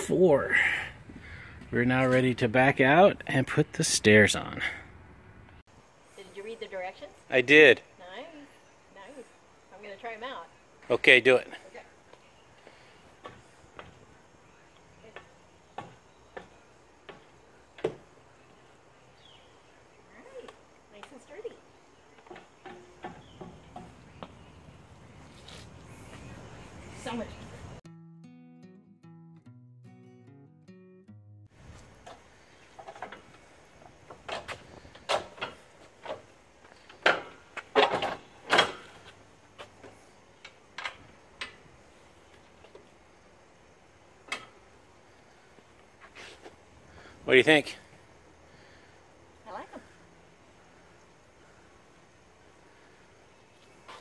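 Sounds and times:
footsteps on metal steps: 15.1s - 18.2s, 22.2s - 24.5s.

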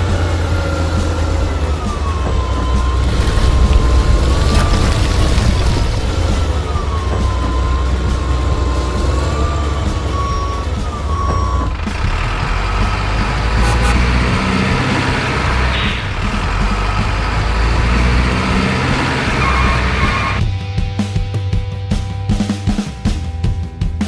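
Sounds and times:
diesel truck engine rumbling: 0.0s - 20.4s
wavering whistle-like tone: 12.7s - 14.1s.

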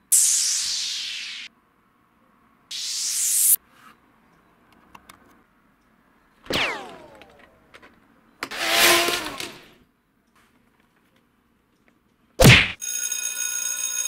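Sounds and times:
falling whistle-like glide: 0.1s - 1.5s, 2.7s - 3.6s
hissing whoosh: 2.7s - 3.6s.

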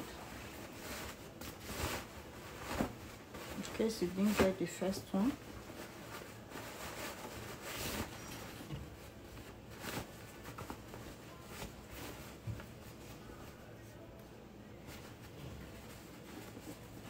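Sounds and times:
fabric rustling: 0.0s - 14.1s, 14.7s - 17.0s.

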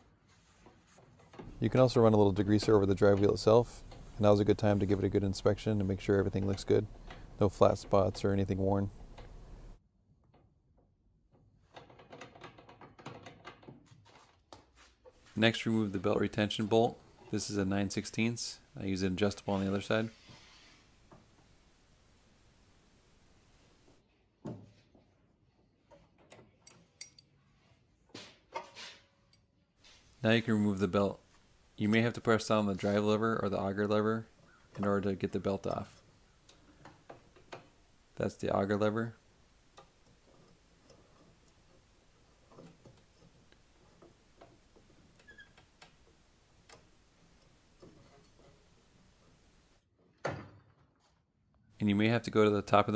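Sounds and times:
faint clicks and soft knocks: 0.6s - 15.4s, 30.9s - 49.8s
metallic clinks of wrenches: 26.6s - 27.3s.

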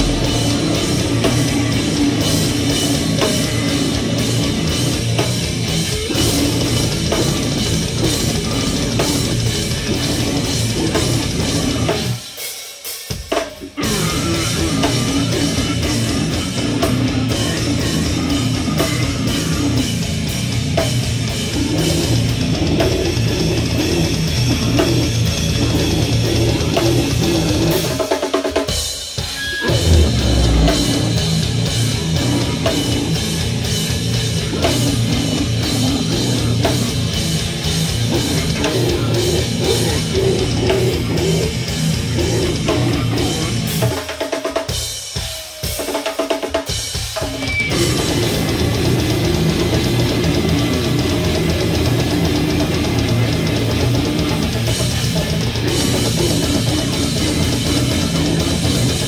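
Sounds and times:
death metal band playing live: 0.0s - 59.0s
guttural vocals: 21.4s - 28.1s, 29.6s - 33.6s, 34.4s - 37.4s, 38.0s - 44.0s, 47.7s - 59.0s.

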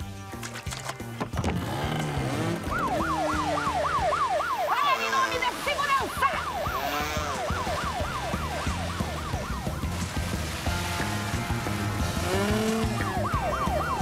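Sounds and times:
cartoon boat siren wailing: 2.4s - 10.9s, 11.6s - 14.0s.

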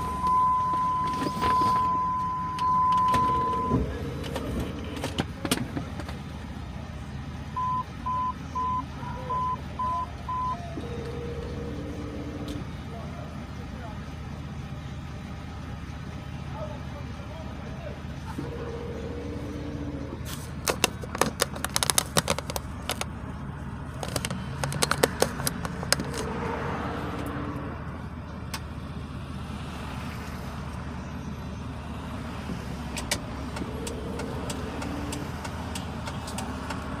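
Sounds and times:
car engine running: 0.0s - 37.0s
sharp clicks and rattles: 20.5s - 23.2s, 23.8s - 26.3s, 32.9s - 37.0s.

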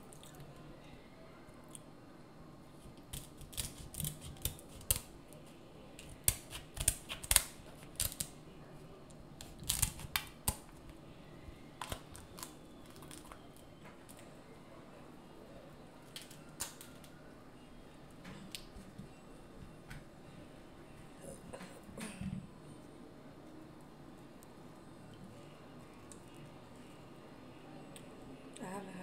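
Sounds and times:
scissors snipping crab shell: 3.1s - 5.1s, 6.0s - 8.4s, 9.4s - 10.7s.

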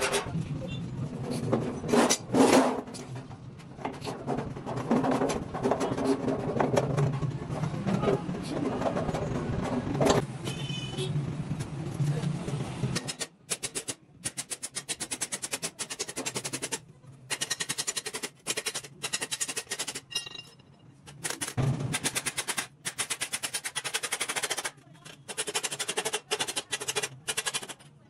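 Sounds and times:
hammer tapping sheet metal: 21.1s - 27.8s.

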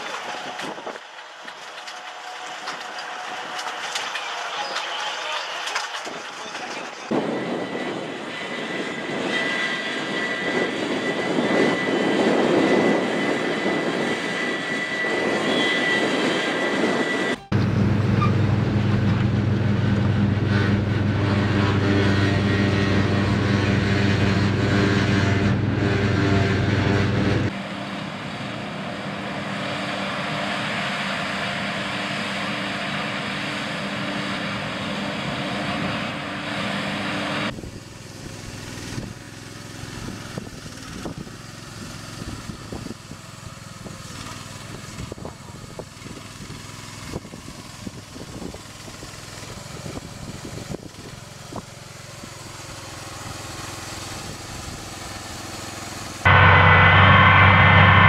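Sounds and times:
harvester engine running loudly: 0.0s - 58.0s
small engine running: 0.0s - 58.0s
machine running steadily: 5.7s - 30.5s, 48.4s - 58.0s.

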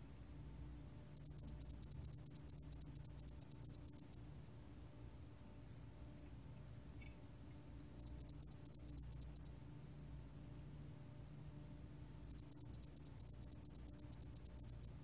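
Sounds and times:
cricket chirping: 1.1s - 4.2s, 7.8s - 9.6s, 12.2s - 15.0s.

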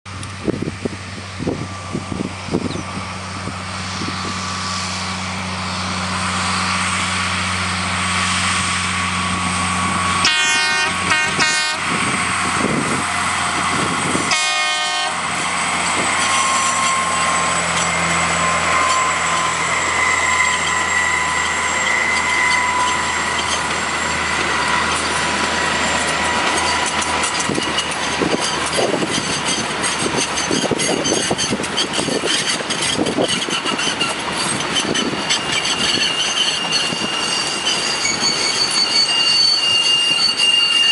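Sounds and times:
diesel locomotive running: 0.1s - 40.9s
locomotive horn: 10.2s - 12.2s, 14.1s - 15.4s
thin high squeal: 13.4s - 40.9s
wheels clicking over rail joints: 15.2s - 39.2s.

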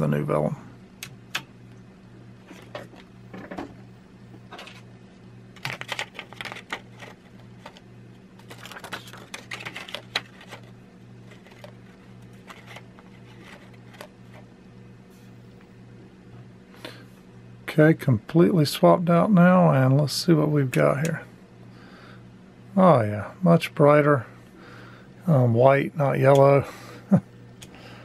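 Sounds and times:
low pulsing hum: 0.0s - 28.0s
rustling scraping and clicks: 5.6s - 14.5s.

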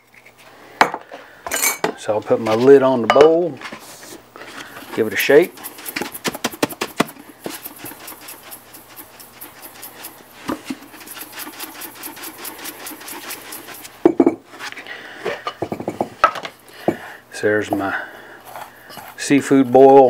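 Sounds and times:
spice rattling in metal bowl: 4.7s - 14.0s.

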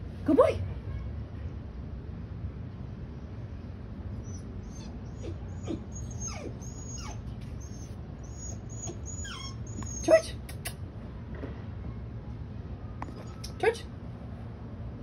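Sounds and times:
dog whimpering: 4.2s - 10.4s.

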